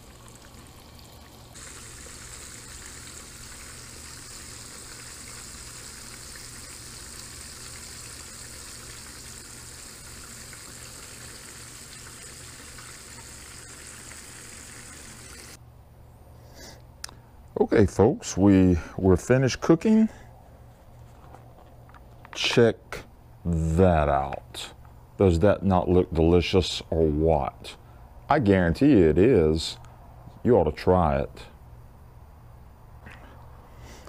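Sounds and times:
fish frying in oil: 0.0 - 15.6.

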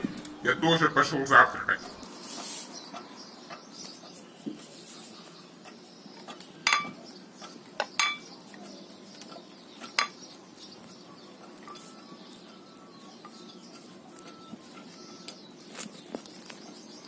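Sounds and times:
jaws clinking against ceramic plate: 5.6 - 12.0.

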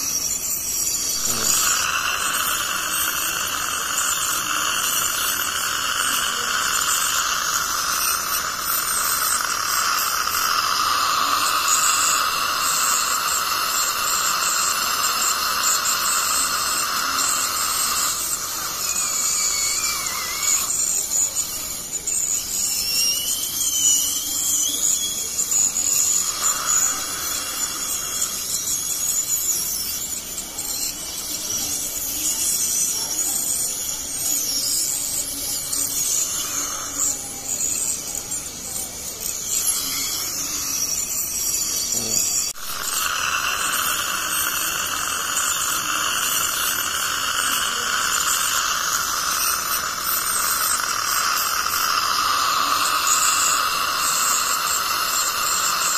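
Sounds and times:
dental scaler high whine: 0.0 - 55.9
suction: 0.0 - 55.9
water spray hiss: 0.8 - 21.3, 42.2 - 55.9.

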